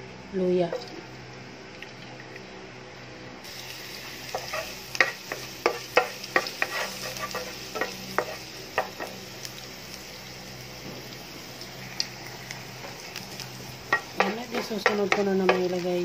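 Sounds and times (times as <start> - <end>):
ginger sizzling in hot oil: 3.4 - 16.0
spatula scraping a pan: 4.3 - 9.1.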